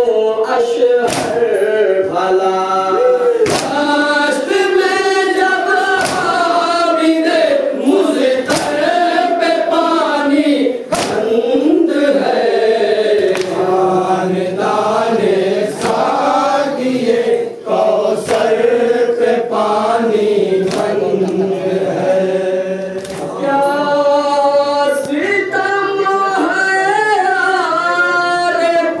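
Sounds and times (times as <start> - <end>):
group chanting: 0.0 - 29.0
sharp slaps: 1.0 - 1.6, 3.4 - 4.0, 5.7 - 6.8, 8.3 - 9.0, 10.9 - 11.3, 13.1 - 13.7, 15.7 - 16.2, 18.2 - 18.6, 20.6 - 21.4, 22.8 - 23.4.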